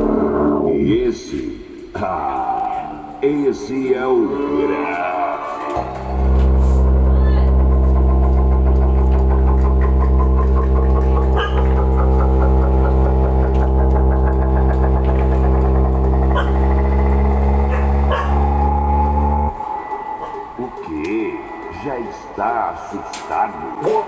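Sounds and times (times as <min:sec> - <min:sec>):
deep distorted bass tone: 0:00.0 - 0:23.8
fast ticking texture: 0:06.1 - 0:19.9.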